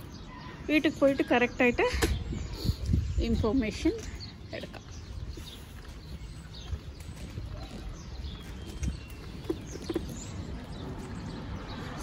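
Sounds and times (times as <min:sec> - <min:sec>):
pushchair rolling over paving: 0:04.2 - 0:12.0.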